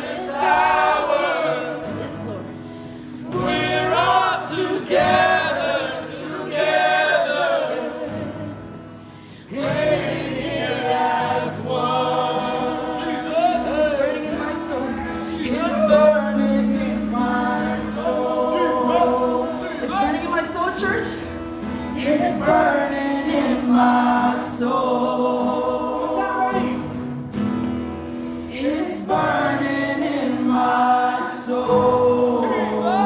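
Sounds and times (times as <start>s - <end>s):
band playing worship song: 0.0s - 33.0s
crowd singing along: 0.0s - 33.0s
woman singing lead: 9.4s - 20.4s, 21.6s - 26.7s, 28.5s - 33.0s.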